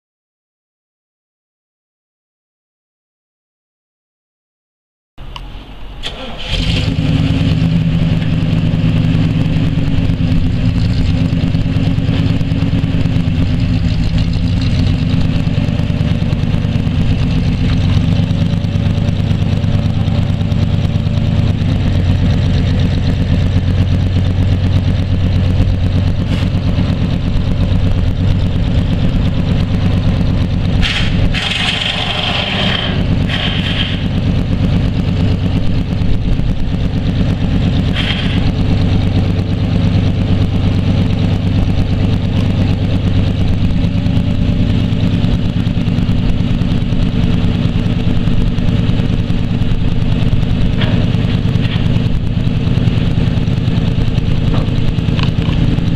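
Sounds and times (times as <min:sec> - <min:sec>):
truck engine starting and idling: 0:05.2 - 0:55.9
hydraulic hoist whine: 0:30.4 - 0:34.3, 0:37.8 - 0:38.6.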